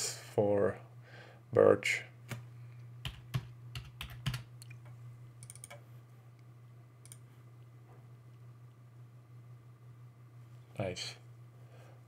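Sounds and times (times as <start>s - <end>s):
steady low hum: 0.0s - 12.0s
computer keyboard typing: 3.0s - 4.5s, 5.4s - 5.8s.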